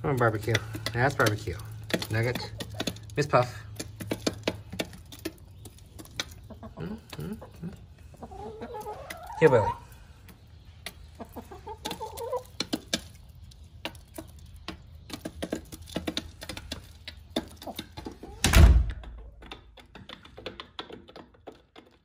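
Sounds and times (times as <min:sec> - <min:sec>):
beaks tapping on wood: 0:00.0 - 0:07.3, 0:10.2 - 0:18.2, 0:19.4 - 0:22.0
door shutting thump: 0:18.4 - 0:19.0.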